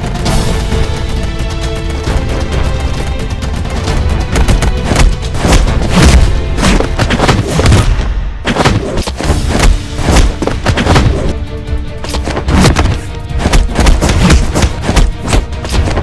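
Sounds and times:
loud music with booming hits: 0.0 - 11.4.

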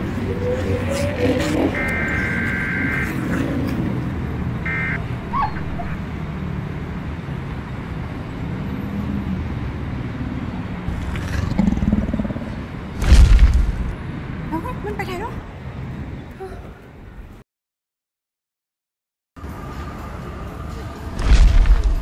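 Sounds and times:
dense city traffic rumble: 0.0 - 17.4, 19.4 - 22.0
car horn: 1.3 - 3.4, 4.6 - 5.8.

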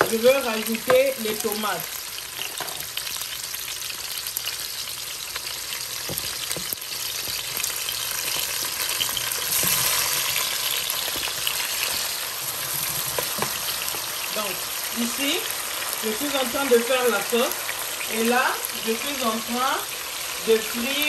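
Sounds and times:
hot oil sizzling with onions: 0.0 - 21.0.

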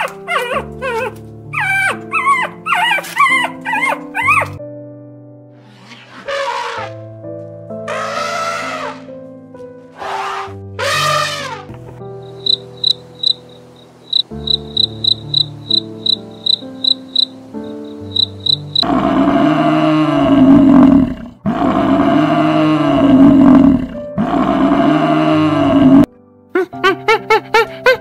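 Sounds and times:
animal calling loudly: 0.0 - 4.6, 5.9 - 7.0, 7.9 - 9.1, 10.0 - 11.7
background music: 0.0 - 28.0
high repeating chirp: 12.4 - 13.5, 14.1 - 17.3, 18.0 - 18.8.

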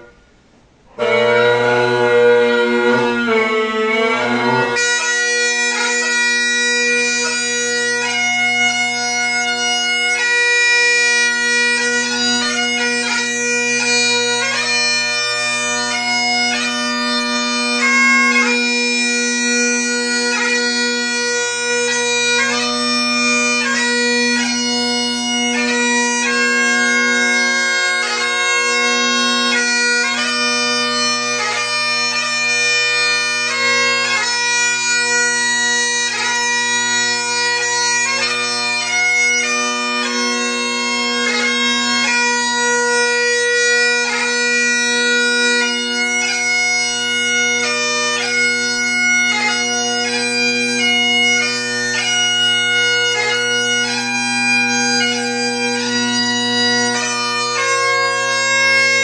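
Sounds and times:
bagpipe playing slow melody: 0.9 - 59.0.

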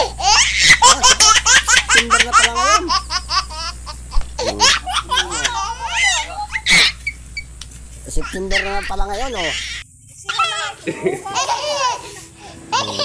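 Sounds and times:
people laughing: 0.0 - 7.1, 10.8 - 13.0.

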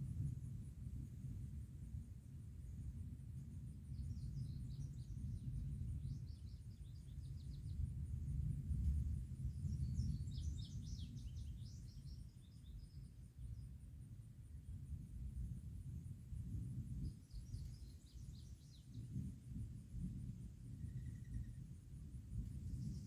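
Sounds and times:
small birds chirping: 9.5 - 13.7, 17.0 - 19.2.

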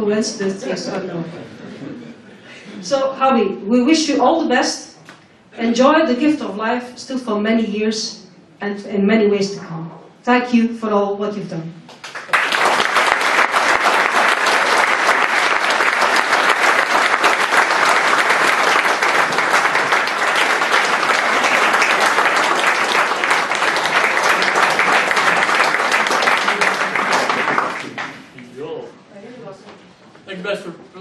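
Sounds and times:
audience clapping: 11.9 - 28.5.

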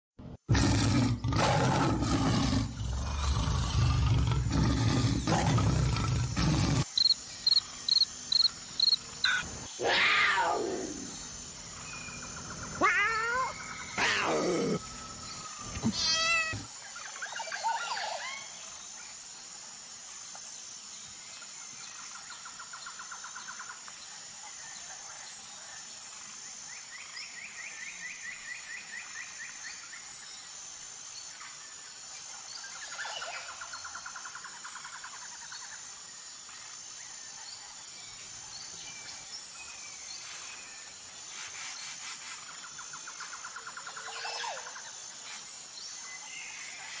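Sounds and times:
high-pitched insect drone: 6.8 - 37.5.

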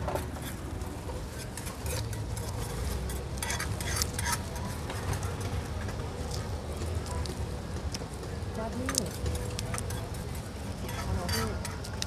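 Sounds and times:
utensil clinking and scraping bowl: 1.4 - 5.2, 9.0 - 11.9.

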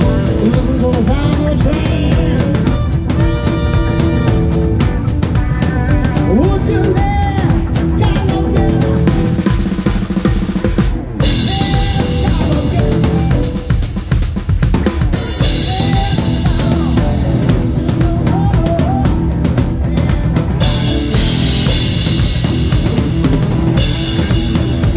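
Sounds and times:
snare drum: 0.0 - 16.8
bass drum: 0.0 - 24.9
live band playing: 0.0 - 24.9.

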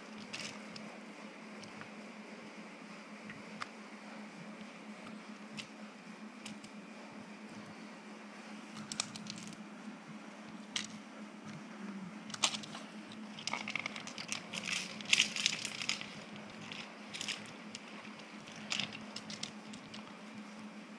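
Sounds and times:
faint steady hum: 0.0 - 20.9
dog paws crunching on gravel: 13.4 - 19.7.

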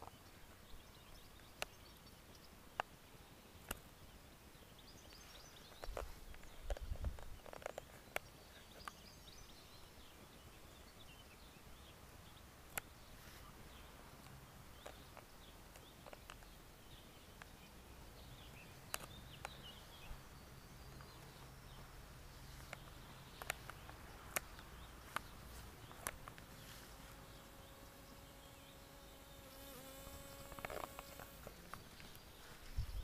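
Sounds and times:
sharp clicks: 18.9 - 19.6, 22.7 - 26.5
flying insect buzzing: 26.0 - 31.8.

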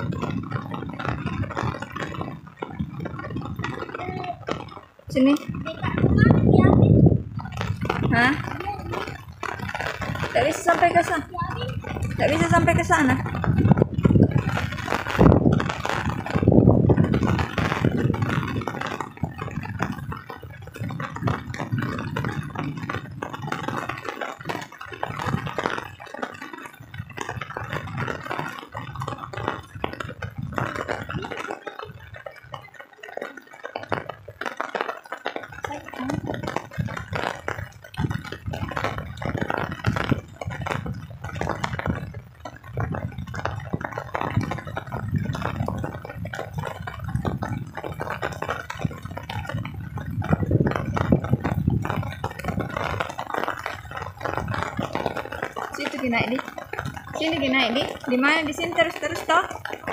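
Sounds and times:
rain: 0.0 - 59.9.

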